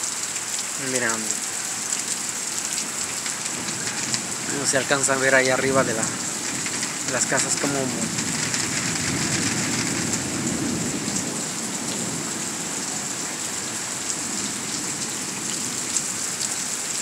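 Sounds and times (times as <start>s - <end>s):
heavy rain on pavement: 0.0s - 17.0s
low rumble of thunder: 3.5s - 13.1s.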